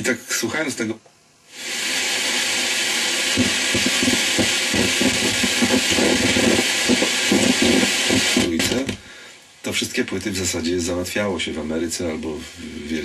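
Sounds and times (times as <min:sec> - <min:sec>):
radio hiss: 0:00.0 - 0:13.0
faint radio programme: 0:01.8 - 0:09.0.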